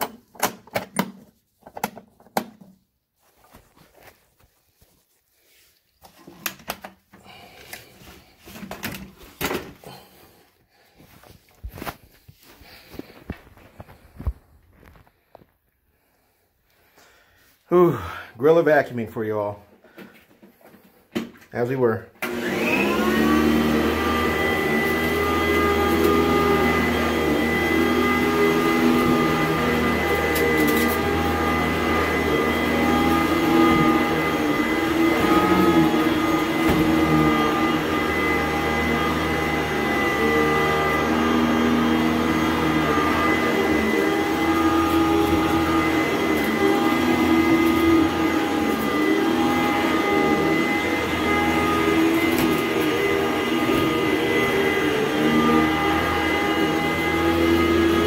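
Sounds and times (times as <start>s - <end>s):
vacuum cleaner motor whine: 22.2s - 58.0s.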